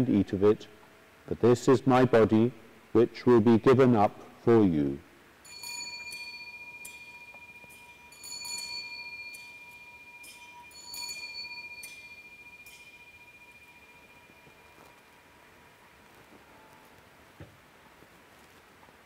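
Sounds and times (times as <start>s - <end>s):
bell ringing: 5.4s - 15.5s.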